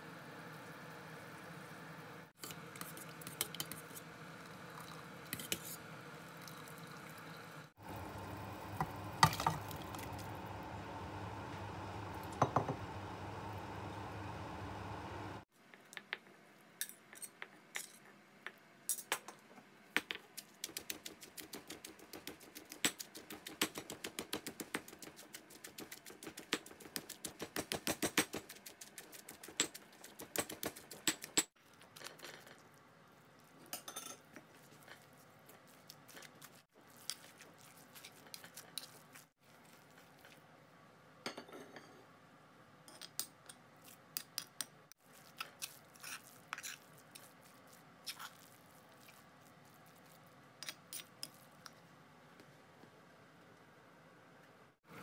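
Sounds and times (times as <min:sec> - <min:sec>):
spoon scraping mortar: 0:02.4 - 0:04.1, 0:34.6 - 0:39.3, 0:44.2 - 0:49.2.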